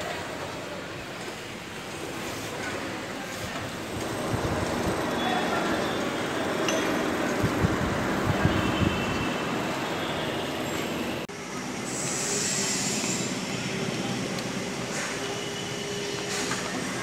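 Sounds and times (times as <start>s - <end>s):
city noise: 0.0s - 17.0s
rushing wind: 3.6s - 9.9s
wind buffeting microphone: 4.1s - 5.1s, 7.1s - 9.3s.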